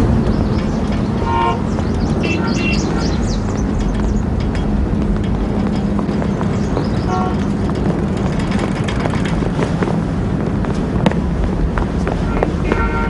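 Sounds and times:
passing vehicles rumbling: 0.0 - 13.0
short horn toot: 12.3 - 13.0.

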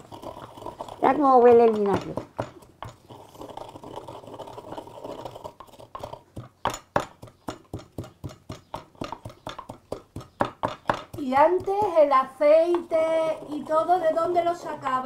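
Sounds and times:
wooden pestle pounding in mortar: 0.2 - 3.3, 5.2 - 13.9.

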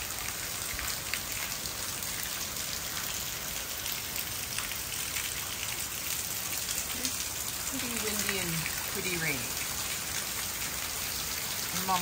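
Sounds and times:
rain falling: 0.0 - 12.0
raindrops ticking: 0.0 - 12.0.

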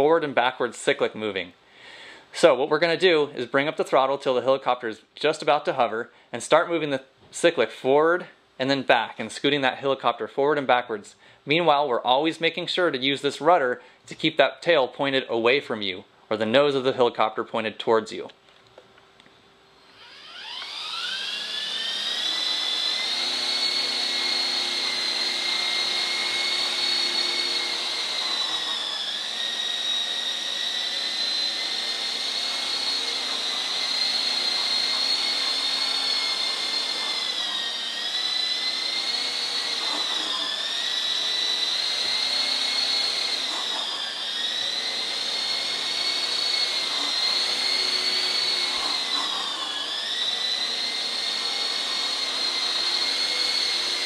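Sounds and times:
toy helicopter motors whining: 19.8 - 54.0.

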